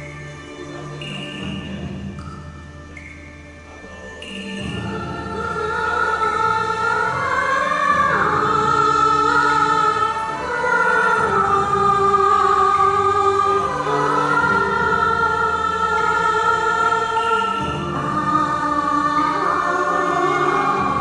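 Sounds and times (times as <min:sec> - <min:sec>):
musical accompaniment: 0:00.0 - 0:21.0
woman singing: 0:04.6 - 0:21.0.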